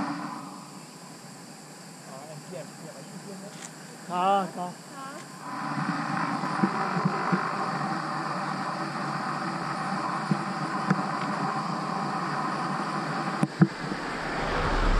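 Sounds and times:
road and wind rushing: 12.4s - 14.9s.

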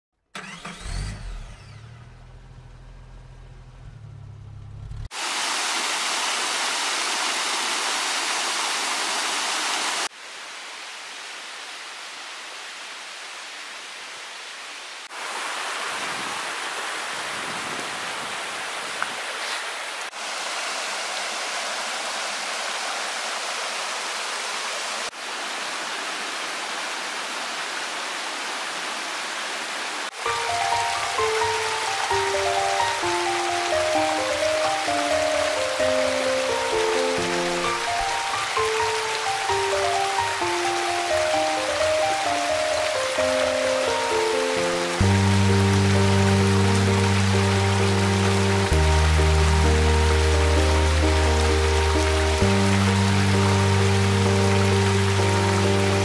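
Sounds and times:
car engine starting and idling: 0.2s - 5.1s
rushing water of a stream: 5.1s - 56.0s.

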